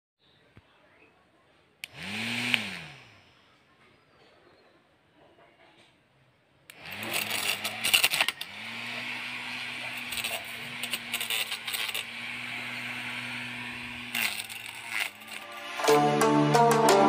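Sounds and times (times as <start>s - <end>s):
small electric motor whining: 1.8s - 3.4s, 6.7s - 16.0s
blade chopping leaves and stems: 6.7s - 16.0s.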